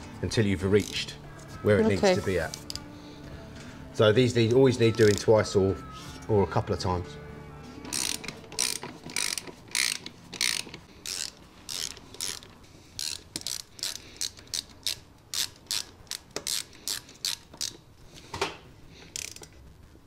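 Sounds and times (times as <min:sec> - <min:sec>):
hand ratchet clicking: 0:00.8 - 0:01.1, 0:04.9 - 0:05.3, 0:07.8 - 0:17.9, 0:19.1 - 0:19.6.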